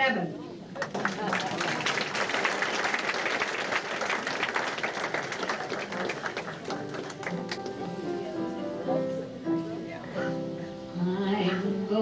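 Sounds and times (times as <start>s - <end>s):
audience applauding: 0.7s - 8.1s
instrumental accompaniment: 6.5s - 11.3s.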